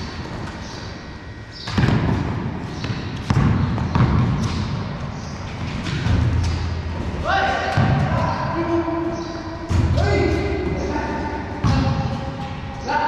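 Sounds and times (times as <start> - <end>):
basketball bouncing on concrete: 1.6 - 5.0, 11.6 - 12.6.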